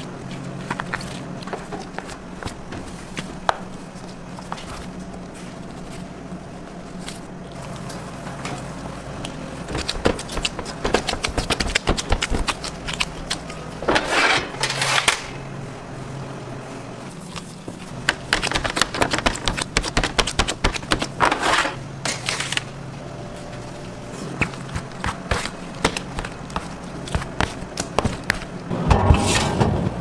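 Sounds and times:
low machine hum: 0.0s - 30.0s
baking sheet scraping into rack: 13.9s - 15.2s, 21.2s - 22.5s, 28.7s - 30.0s.

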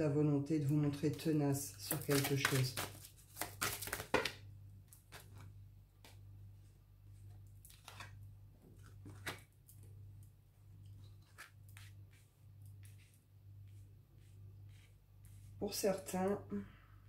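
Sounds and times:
cards shuffling and sliding: 1.9s - 4.4s, 8.8s - 9.5s.

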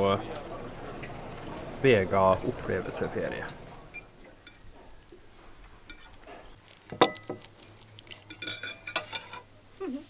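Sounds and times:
cutlery clinking on a china plate: 5.9s - 7.5s, 8.1s - 9.5s.

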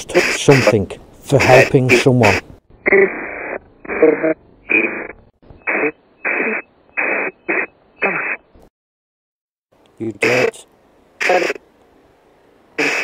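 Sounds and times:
radio speech fragments: 0.0s - 8.4s, 10.2s - 11.6s, 12.8s - 13.0s.

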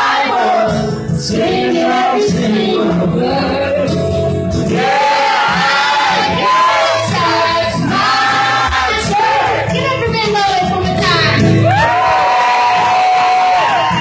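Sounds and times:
woman singing: 0.0s - 4.2s, 5.9s - 11.4s
country band playing: 0.0s - 14.0s.

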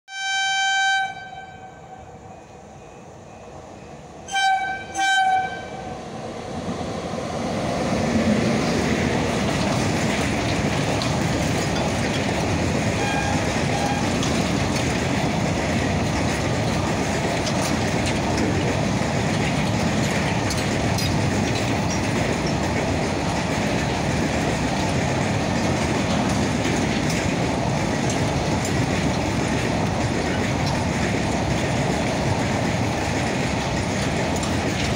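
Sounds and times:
locomotive horn: 0.1s - 2.1s, 4.3s - 5.9s, 13.0s - 14.3s
train wagons passing: 0.2s - 34.9s.

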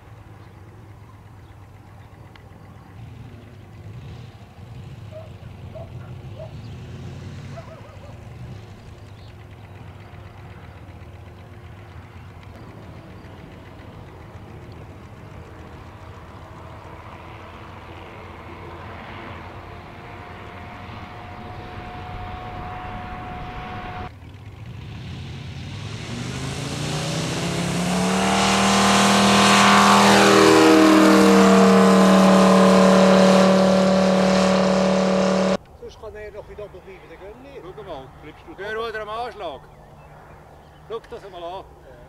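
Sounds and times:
model airplane engine running: 7.6s - 25.6s.

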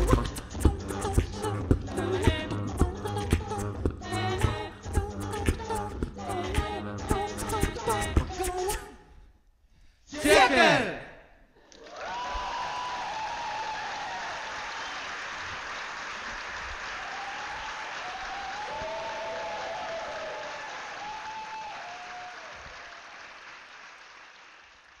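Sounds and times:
people cheering: 11.7s - 23.5s
audience applauding: 11.8s - 25.0s.

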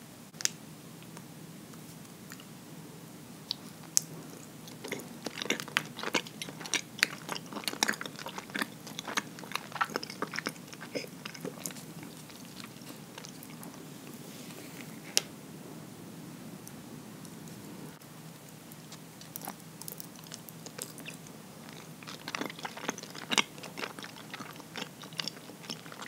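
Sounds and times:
chewing sticky food: 3.5s - 14.1s, 18.3s - 26.0s.

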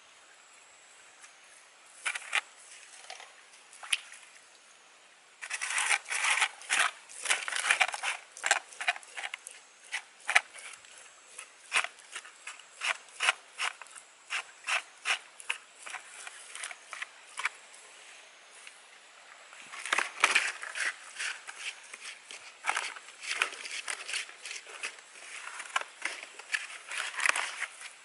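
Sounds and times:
hands rubbing clay pot: 5.4s - 17.5s.

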